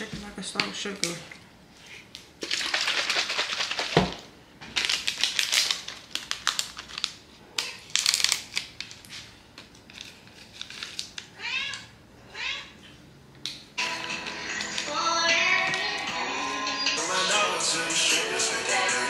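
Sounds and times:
crinkling and rustling: 0:02.4 - 0:11.3
cat meowing: 0:11.4 - 0:12.8.

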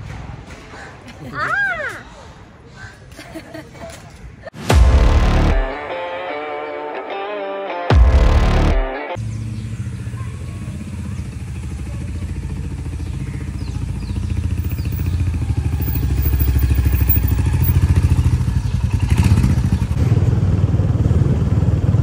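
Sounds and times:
motorcycle engine running: 0:07.9 - 0:22.0.

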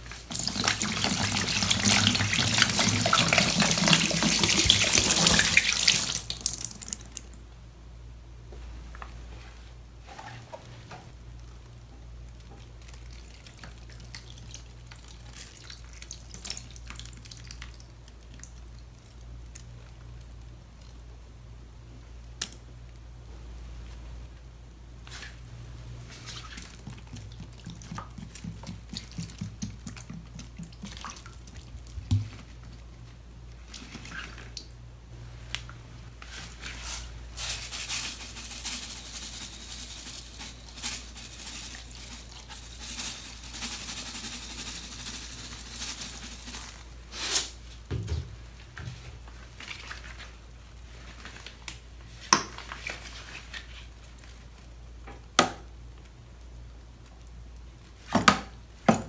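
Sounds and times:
cleanser squelching on sponges: 0:26.0 - 0:34.6
beads pouring hiss: 0:36.8 - 0:47.6.

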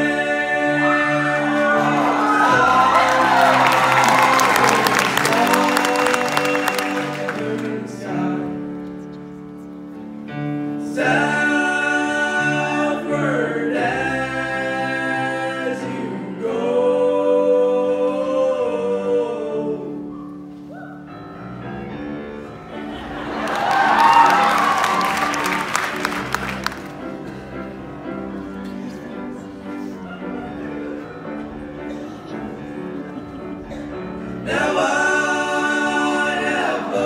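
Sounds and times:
boys singing in harmony: 0:00.0 - 0:08.8, 0:10.8 - 0:20.2, 0:31.9 - 0:37.0
audience cheering and applauding: 0:01.2 - 0:07.6, 0:23.0 - 0:27.2.

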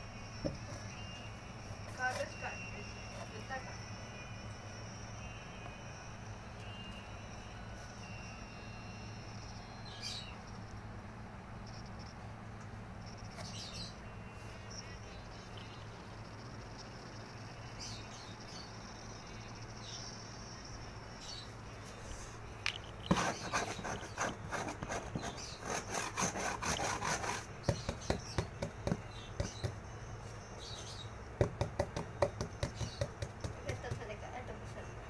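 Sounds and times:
scratching on cardboard box: 0:23.0 - 0:29.7.

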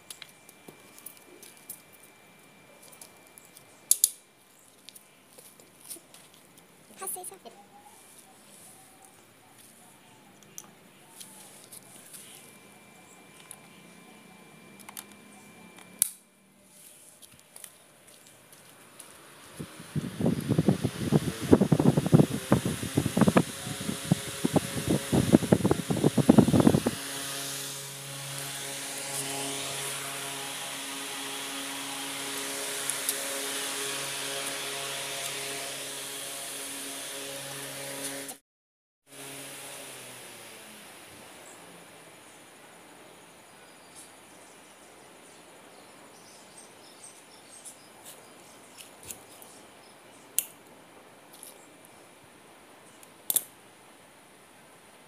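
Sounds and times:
low electric hum: 0:00.0 - 0:38.3
fan air buffeting microphone: 0:18.8 - 0:38.3
wires and tools clicking: 0:53.0 - 0:53.5.

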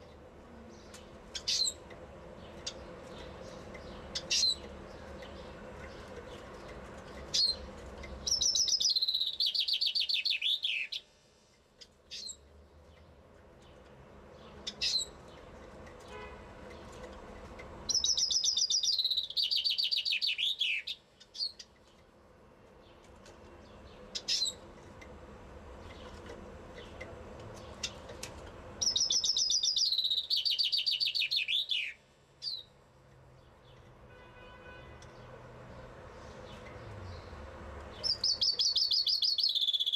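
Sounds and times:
chaffinch singing: 0:00.0 - 0:11.1, 0:11.8 - 0:12.4, 0:14.4 - 0:16.0, 0:16.7 - 0:22.0, 0:23.6 - 0:24.7, 0:25.8 - 0:32.8, 0:36.2 - 0:39.9
bird call notes: 0:17.9 - 0:21.6, 0:28.8 - 0:32.6, 0:38.0 - 0:39.9.

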